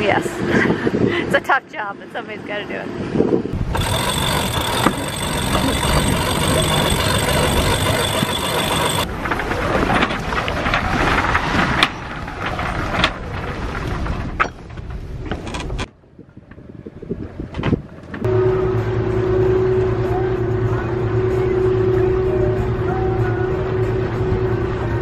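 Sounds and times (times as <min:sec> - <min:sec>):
mechanical whine of sail furler: 0:03.6 - 0:13.8.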